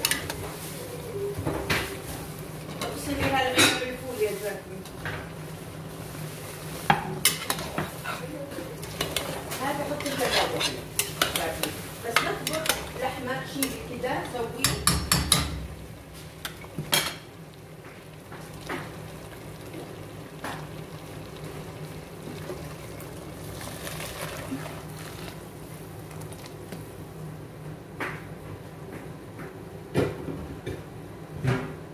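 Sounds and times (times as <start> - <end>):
food sizzling: 0.0 - 27.0
spoon knocking metal pot: 14.6 - 15.6.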